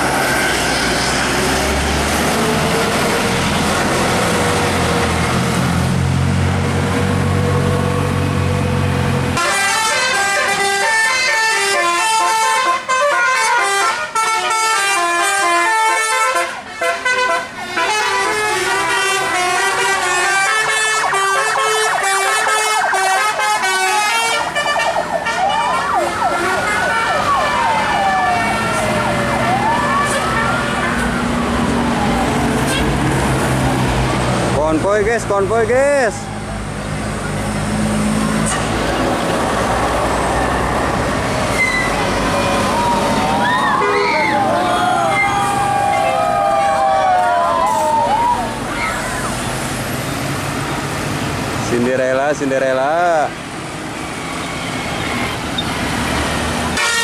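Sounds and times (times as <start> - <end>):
bus engine running: 0.0 - 11.7, 16.6 - 51.8, 52.8 - 57.0
musical air horn melody: 9.4 - 27.4, 43.8 - 44.3, 56.8 - 57.0
siren-like horn sweeping: 9.4 - 31.3, 41.5 - 46.2, 56.8 - 57.0.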